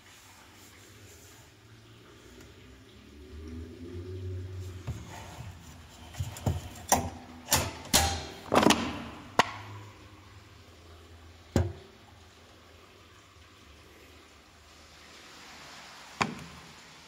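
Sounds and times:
objects knocking and clunking: 4.8 - 9.8, 11.5 - 12.0.

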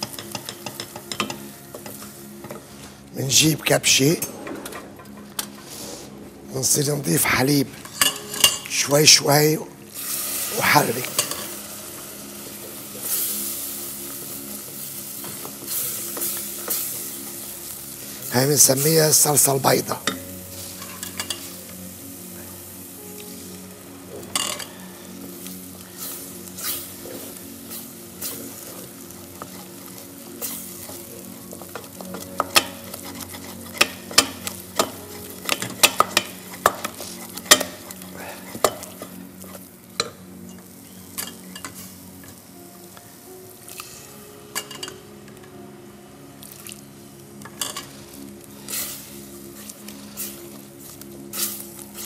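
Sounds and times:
wooden spoon stirring sauce: 29.2 - 39.6.

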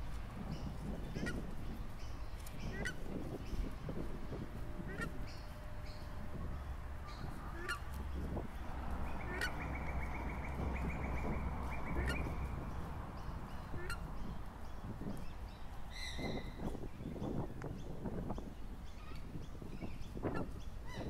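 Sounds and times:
low rumble: 0.0 - 15.2
birds calling: 0.0 - 21.0
bird trill: 9.1 - 14.4.

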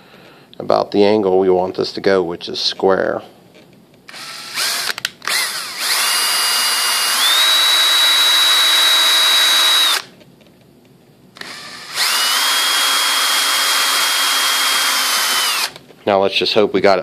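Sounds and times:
cordless drill whining: 4.1 - 10.1, 11.4 - 15.8
drill trigger blips: 4.1 - 10.1, 11.4 - 15.8.

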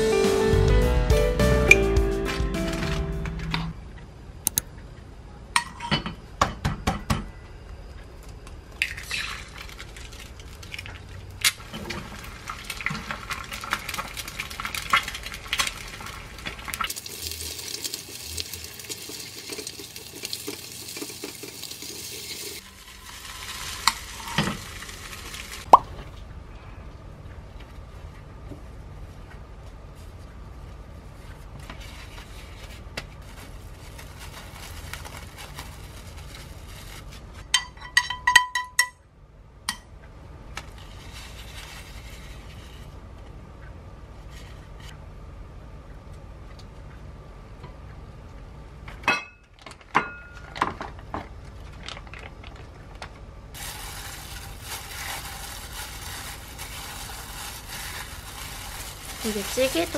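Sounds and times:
crinkly rustle of plastic gloves: 9.1 - 25.7, 31.0 - 37.4, 40.7 - 42.9, 51.4 - 59.9.

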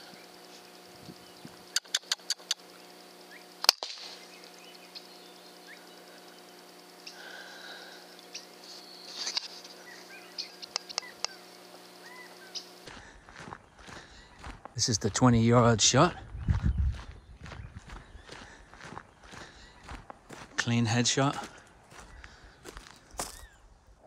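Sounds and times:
faint chirps: 0.0 - 15.1
low hum: 0.0 - 24.0
small clicks: 1.7 - 2.7, 10.4 - 11.7.

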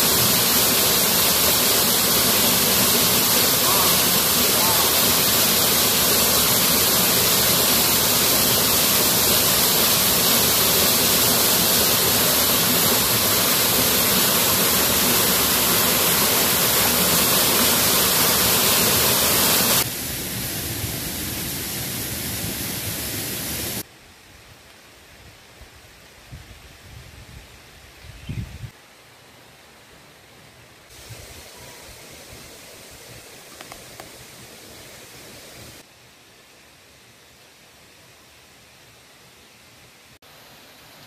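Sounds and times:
river water rushing: 0.0 - 19.9.

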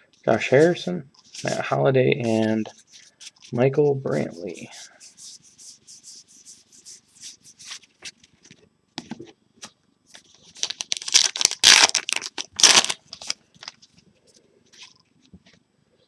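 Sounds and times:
plastic wrapper crinkling and tearing: 10.4 - 13.9.

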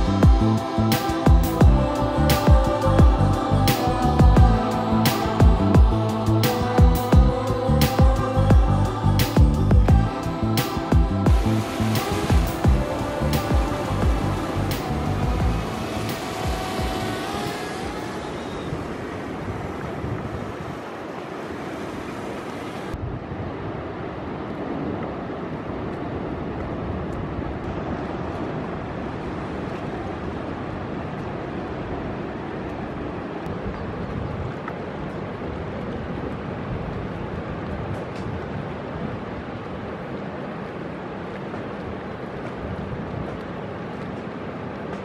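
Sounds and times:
wind noise on microphone: 0.0 - 45.0
ocean surf breaking: 10.1 - 45.0.

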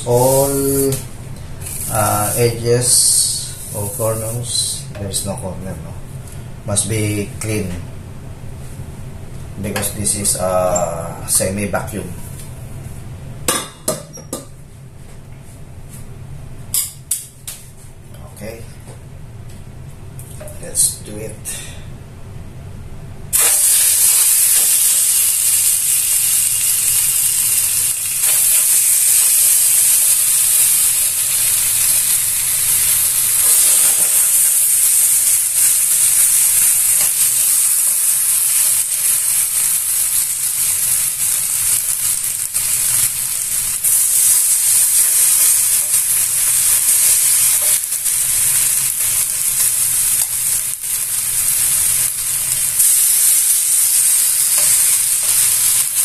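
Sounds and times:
meat sizzling in a skillet: 23.3 - 56.0.

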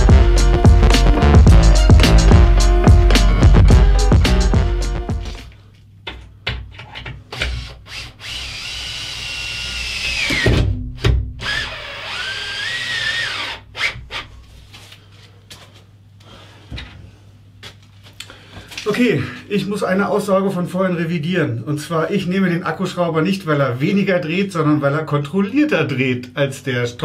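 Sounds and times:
cordless drill motor whine: 7.6 - 10.4, 11.4 - 14.0.

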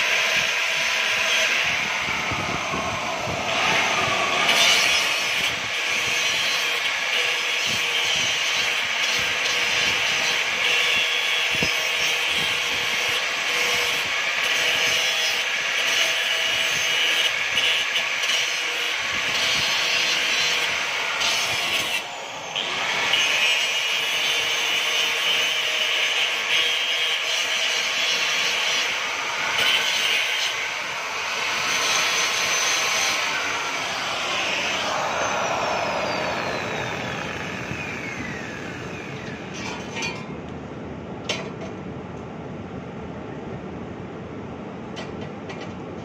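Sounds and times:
angle grinder grinding metal: 0.0 - 40.3
grinder disc spinning down: 0.8 - 7.1, 30.5 - 39.6.

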